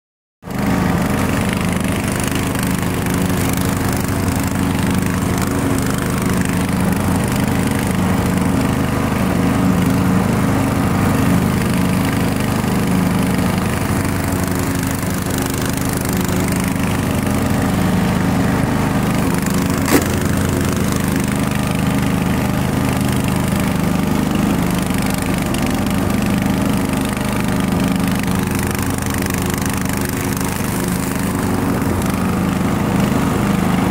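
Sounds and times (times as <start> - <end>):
riding mower engine: 0.4 - 33.9
sharp click: 19.8 - 20.4.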